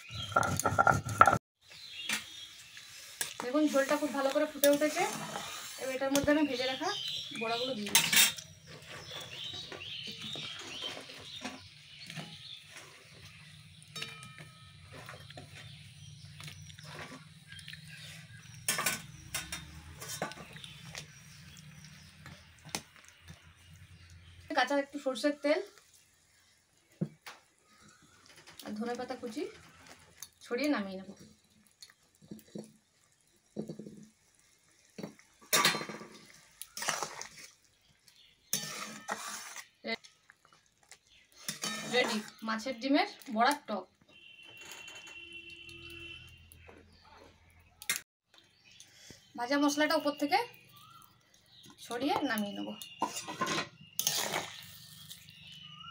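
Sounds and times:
metal cookware clattering and scraping: 0:00.0 - 0:01.4, 0:07.5 - 0:15.8, 0:18.3 - 0:20.7, 0:35.0 - 0:37.4, 0:38.5 - 0:39.8, 0:41.4 - 0:42.5, 0:52.9 - 0:55.0
spoon clinking against pan: 0:13.9 - 0:14.9.

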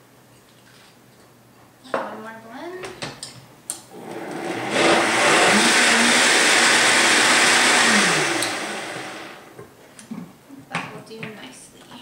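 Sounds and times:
blender motor running: 0:03.9 - 0:09.5
blender switch click: 0:08.4 - 0:08.6.

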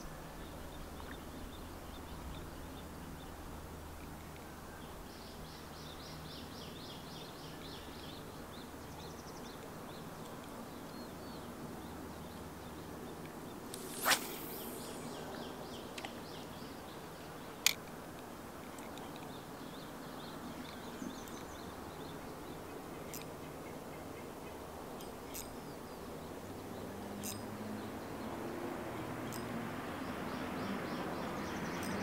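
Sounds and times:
steady river hiss: 0:13.6 - 0:26.6
birds chirping: 0:13.8 - 0:16.8.

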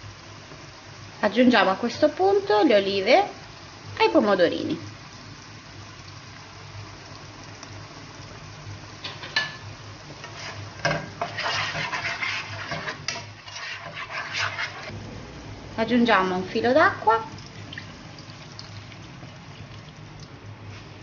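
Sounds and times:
food sizzling in oil: 0:00.0 - 0:21.0
spoon scraping a pan: 0:10.2 - 0:14.9.

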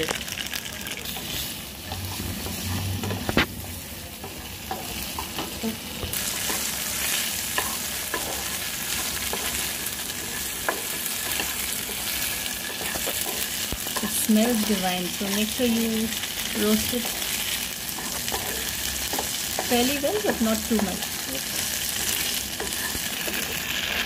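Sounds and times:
tofu sizzling in hot oil: 0:00.0 - 0:02.6, 0:04.4 - 0:24.0
spatula scraping a pan: 0:17.0 - 0:24.0.

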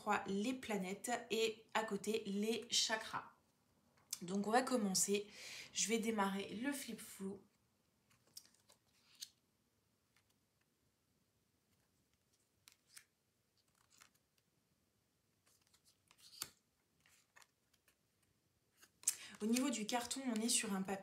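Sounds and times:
cards sliding and tapping: 0:08.1 - 0:09.4, 0:11.7 - 0:14.4, 0:15.4 - 0:20.6.

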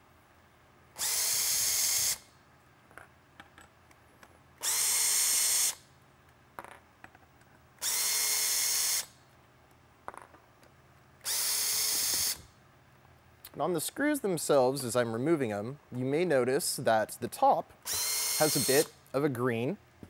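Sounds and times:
cordless drill motor whine: 0:01.0 - 0:02.3, 0:04.6 - 0:05.9, 0:07.8 - 0:09.1, 0:11.2 - 0:12.5, 0:17.8 - 0:18.9.

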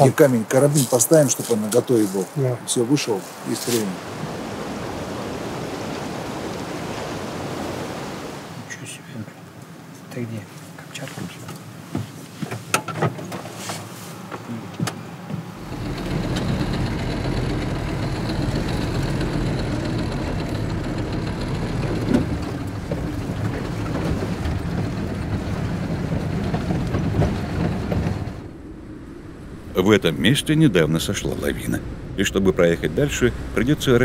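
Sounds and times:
engine and road rumble: 0:12.4 - 0:34.0.

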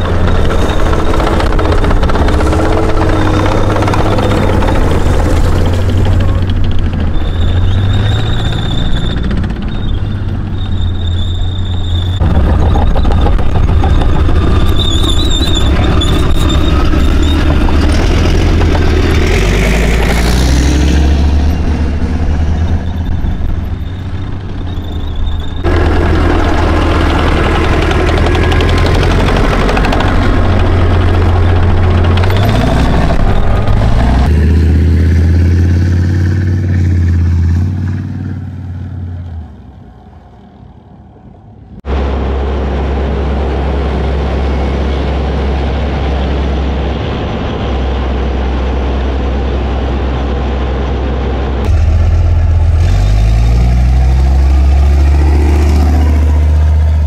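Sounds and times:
running gear squeal: 0:00.0 - 0:18.4, 0:21.1 - 0:25.8, 0:31.0 - 0:34.3
tank diesel engines driving past: 0:00.0 - 0:57.0.

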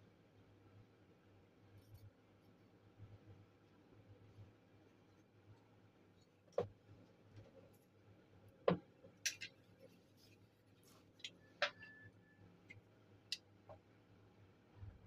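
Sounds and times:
clicks and knocks of handled objects: 0:08.7 - 0:09.7.

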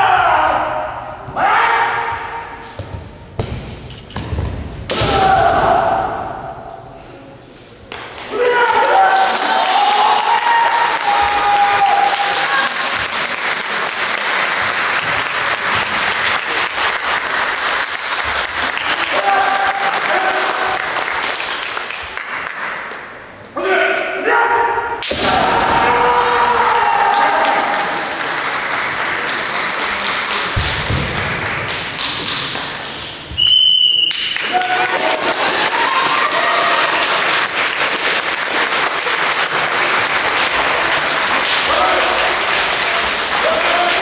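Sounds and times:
audience applauding: 0:07.9 - 0:22.7, 0:26.3 - 0:33.1, 0:34.0 - 0:44.0.

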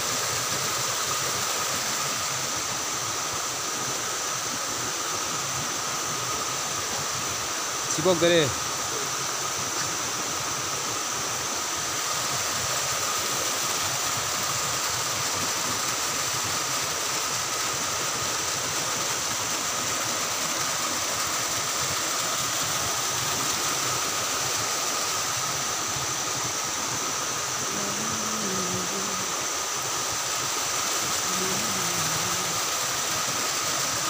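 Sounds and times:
water pouring over rocks: 0:11.0 - 0:28.0, 0:28.9 - 0:34.0.

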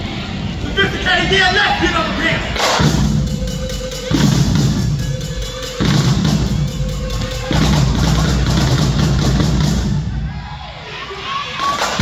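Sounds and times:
loud drum-heavy music: 0:02.6 - 0:10.4.

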